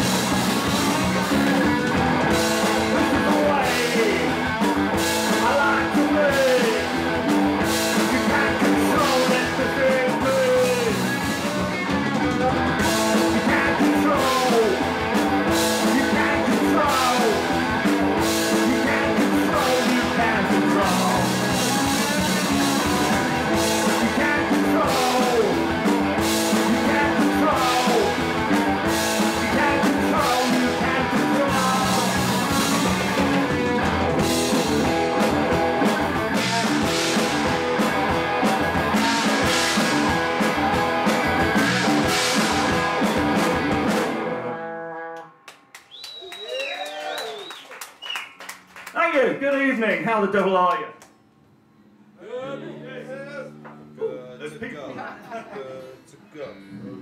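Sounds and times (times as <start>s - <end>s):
punk rock band playing live: 0.0s - 45.2s.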